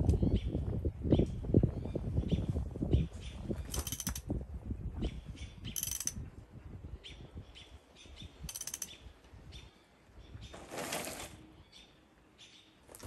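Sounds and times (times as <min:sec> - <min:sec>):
ratchet wrench clicking: 0:03.7 - 0:04.2, 0:05.8 - 0:06.2, 0:08.5 - 0:08.9.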